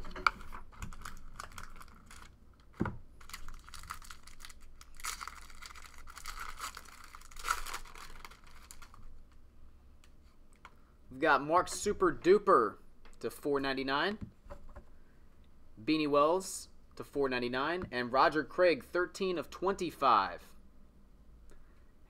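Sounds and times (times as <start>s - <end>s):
packaging crinkling and scraping: 0.0s - 9.2s
paper wrapper tearing: 0.4s - 9.2s.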